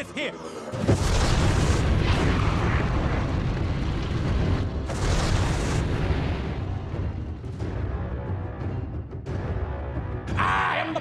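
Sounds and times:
bright explosion burst: 0.9s - 6.8s
rush of flame: 0.9s - 7.2s.

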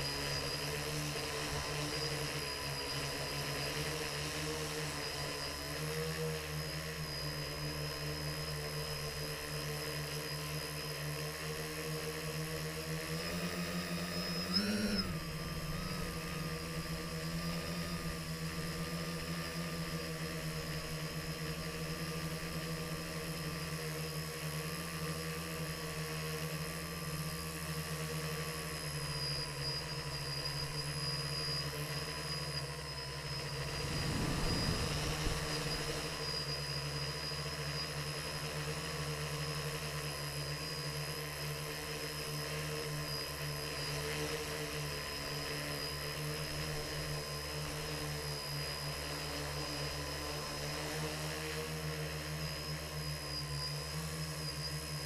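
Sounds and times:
drone propellers whirring: 0.0s - 55.0s
short low rumble: 33.4s - 36.4s.

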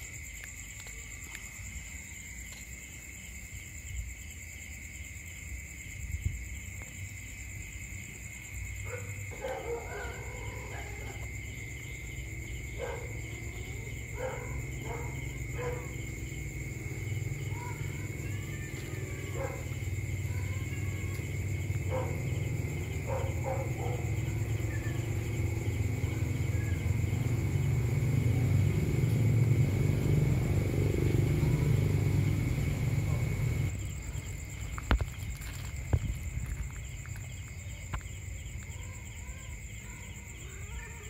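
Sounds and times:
crickets trilling: 0.0s - 41.0s
cats crying: 8.9s - 27.4s.

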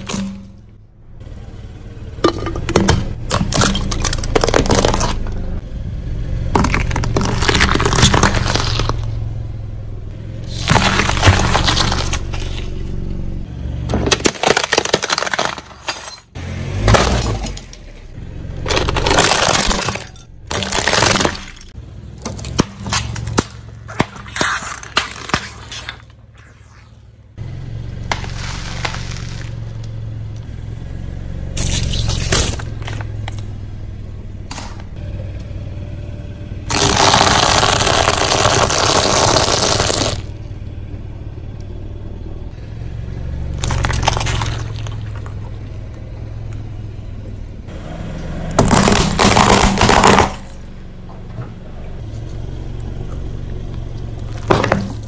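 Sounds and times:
tyre crushing items: 0.0s - 0.7s, 2.2s - 5.5s, 6.5s - 9.1s, 10.4s - 12.8s, 13.9s - 18.0s, 18.6s - 26.2s, 36.7s - 40.3s, 43.6s - 45.4s, 48.6s - 50.7s, 54.2s - 55.0s
car engine hum: 0.0s - 55.0s
snacks crunching under tyre: 3.2s - 5.6s, 6.5s - 9.2s, 10.4s - 13.2s, 14.0s - 18.0s, 18.6s - 26.9s, 28.0s - 30.5s, 31.6s - 33.5s, 36.7s - 40.3s, 43.5s - 46.6s, 47.7s - 50.7s, 51.4s - 55.0s
plastic pouches bursting: 6.6s - 9.1s, 10.4s - 12.7s, 14.1s - 16.0s, 18.7s - 21.7s, 36.7s - 40.3s, 43.6s - 45.3s, 48.6s - 50.6s.

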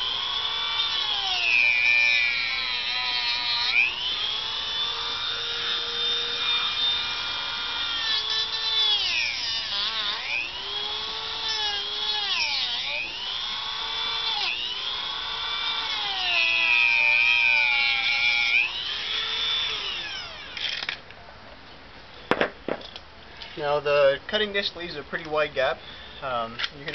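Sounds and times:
rotary tool cutting plastic: 0.0s - 21.0s.

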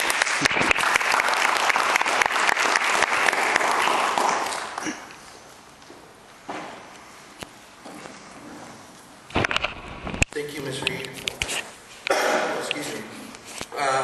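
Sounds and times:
audience clapping: 0.0s - 5.2s.

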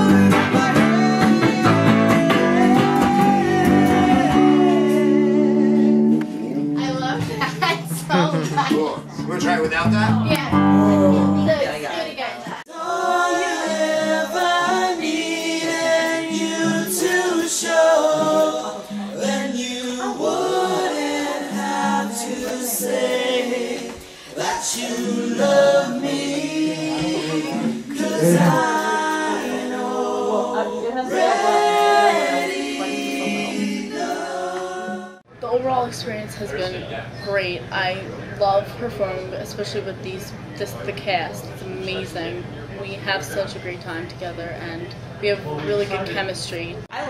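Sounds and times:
people singing unaccompanied: 0.0s - 9.0s, 10.2s - 35.3s.

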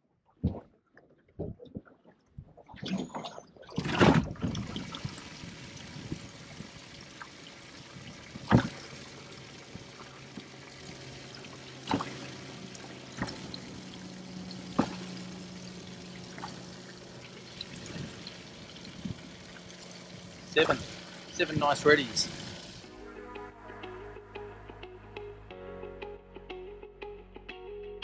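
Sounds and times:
water pouring and trickling: 2.2s - 22.9s
sharp knocks in live well: 8.3s - 9.0s, 11.8s - 21.1s.

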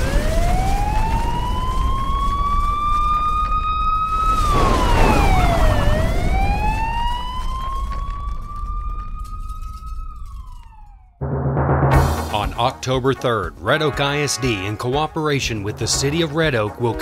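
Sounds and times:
siren wailing: 0.0s - 11.2s
low rumble: 4.0s - 12.6s.

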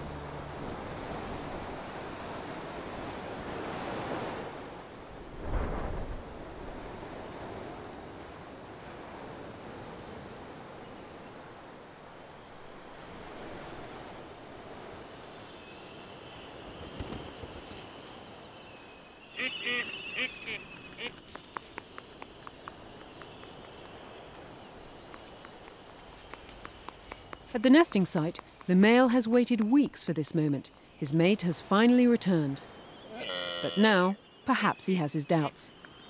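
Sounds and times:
ocean surf: 0.0s - 15.5s
wind: 0.0s - 36.0s
seabird calls: 19.1s - 36.0s.

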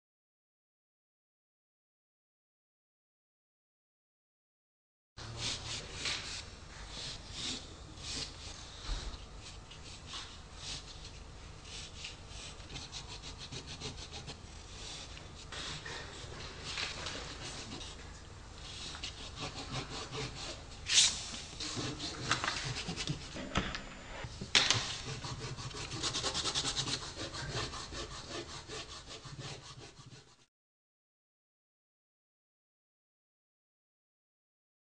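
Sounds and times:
pencil scratching on paper: 5.2s - 18.0s, 18.6s - 23.5s, 24.7s - 30.5s.

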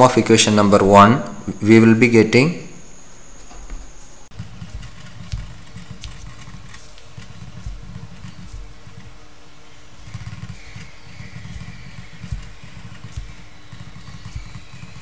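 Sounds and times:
pen writing on paper: 4.4s - 9.2s, 10.0s - 15.0s.

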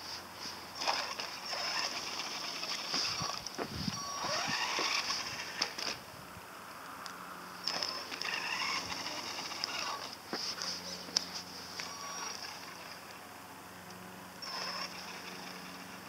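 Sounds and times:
toy electric motor whining: 0.8s - 6.0s, 7.6s - 13.1s, 14.4s - 16.0s.

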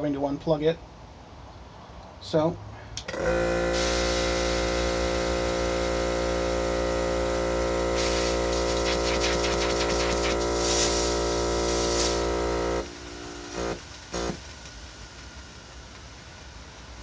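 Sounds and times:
hissing air with crackles: 2.8s - 17.0s
compressor humming: 3.0s - 15.9s.

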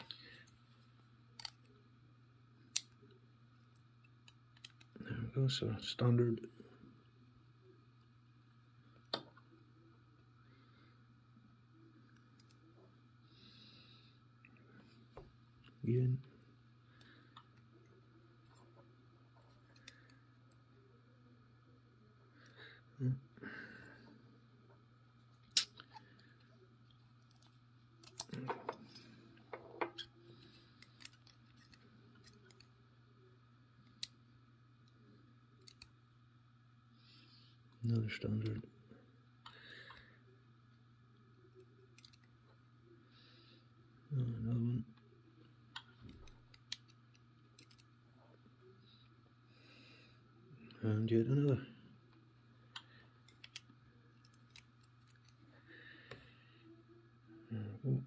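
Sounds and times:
faint low hum: 0.0s - 58.0s
lock parts clicking: 47.6s - 47.9s.

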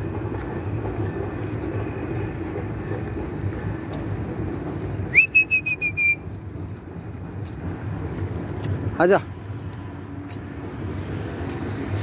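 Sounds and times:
low outdoor rumble: 0.0s - 12.0s
person whistling: 5.1s - 6.3s.

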